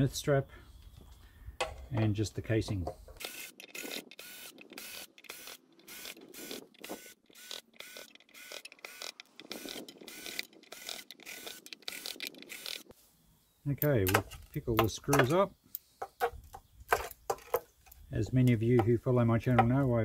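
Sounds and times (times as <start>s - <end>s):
cordless drill motor whining: 3.2s - 12.8s.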